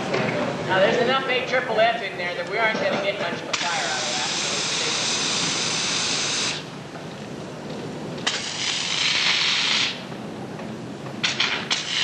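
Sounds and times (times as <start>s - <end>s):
foam nozzle hissing: 3.6s - 6.7s, 8.2s - 10.0s, 11.3s - 12.0s.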